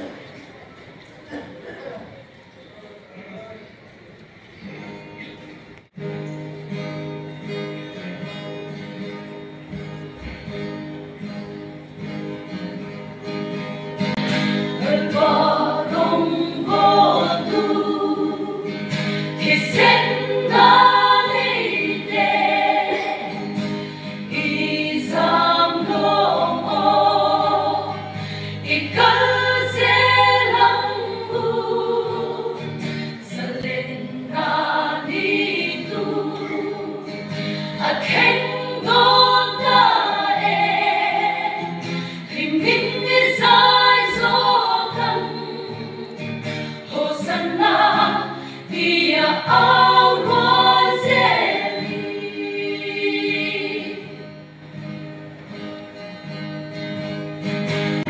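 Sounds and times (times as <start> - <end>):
mixed choir singing in harmony: 14.2 - 54.7.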